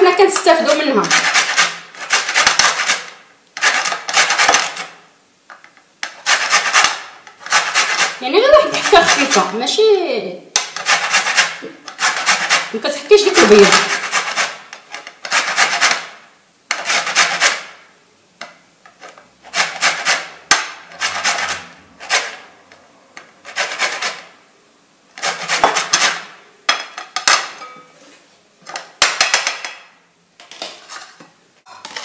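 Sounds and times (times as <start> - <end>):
lemon rasped on metal grater: 0.7 - 4.9, 6.1 - 9.5, 10.8 - 12.7, 13.3 - 16.1, 19.0 - 22.5, 25.2 - 26.3.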